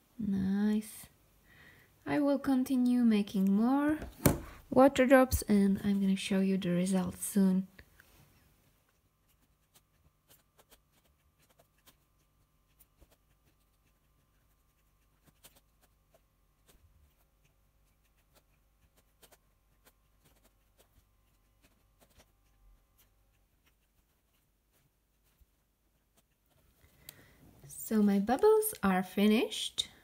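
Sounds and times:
faint low hum: 0.0 - 30.0
faint ticks and clicks: 25.2 - 28.9.

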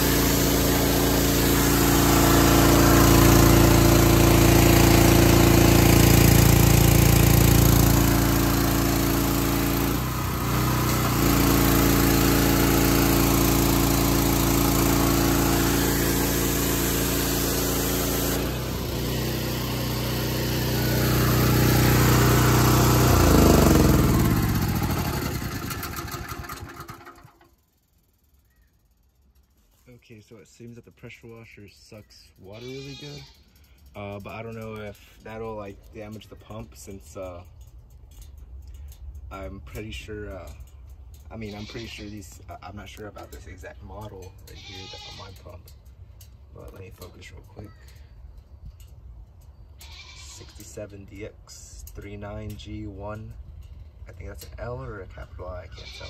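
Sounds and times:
water spray hiss: 0.0 - 19.3
engine winding down: 0.0 - 27.5
small gasoline engine running: 0.0 - 27.7, 44.6 - 45.4.

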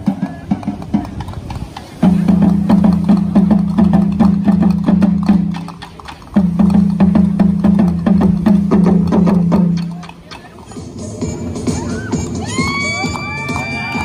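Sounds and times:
dance music with clicking beat: 9.0 - 14.0.

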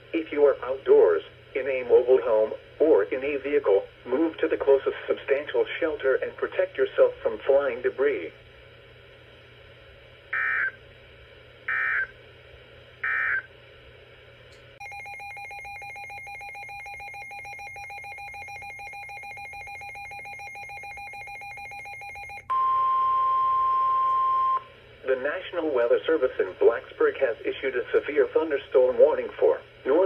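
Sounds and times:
steady buzzing signal: 0.1 - 28.5
steady alarm tone: 10.3 - 10.8, 11.7 - 12.1, 13.0 - 13.5, 14.8 - 24.7.

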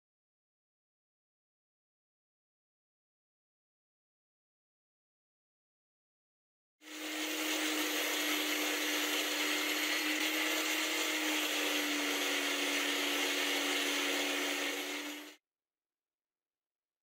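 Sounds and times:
disc sander humming: 6.8 - 15.4
drill bit grinding hiss: 6.8 - 15.4.

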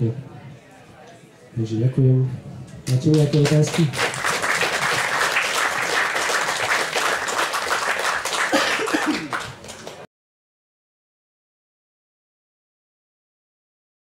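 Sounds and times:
audience applauding: 2.9 - 10.1.

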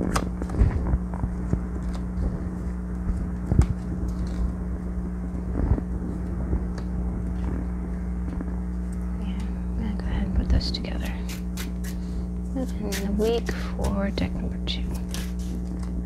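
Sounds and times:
steady low hum: 0.0 - 16.0
playing cards tapping and sliding: 14.8 - 16.0.

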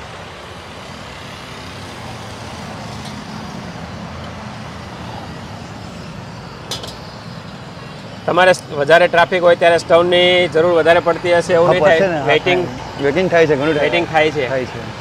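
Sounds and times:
roadside traffic noise: 0.0 - 15.0.

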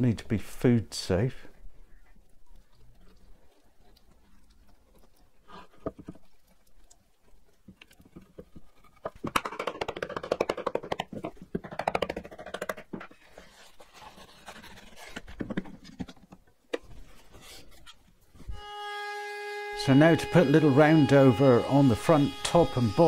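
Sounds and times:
glue brush scrubbing: 2.8 - 16.0.

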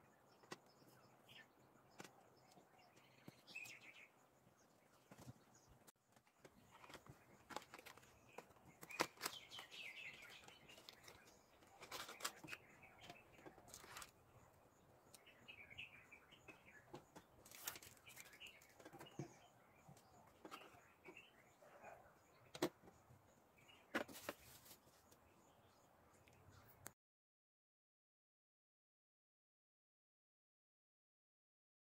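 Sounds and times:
birds chirping: 0.0 - 26.9
cardboard box rustling and tapping: 23.9 - 24.8.

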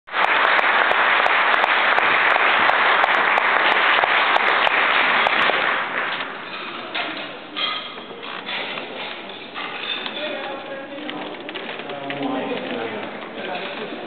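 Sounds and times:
audience applauding: 0.1 - 6.6.

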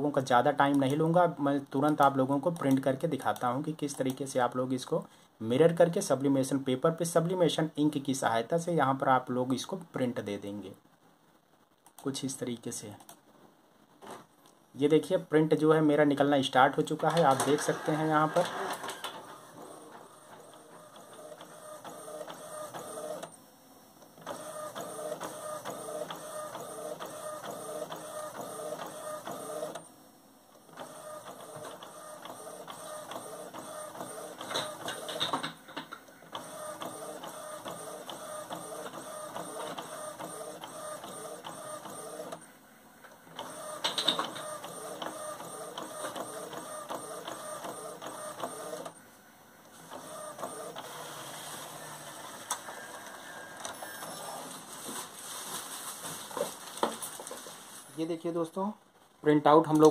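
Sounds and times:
printer clattering: 16.8 - 23.3, 24.2 - 29.8, 30.8 - 42.4, 43.3 - 49.0, 49.9 - 54.4
inkjet printer carriage whirring: 16.8 - 54.9.

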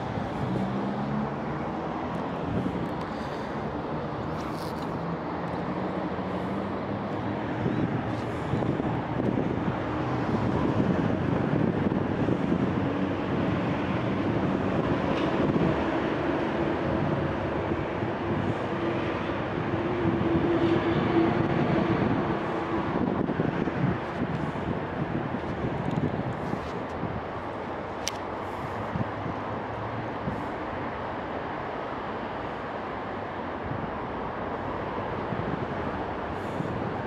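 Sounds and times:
passing vehicle hum: 0.0 - 37.0
road traffic rumble: 0.0 - 37.0.

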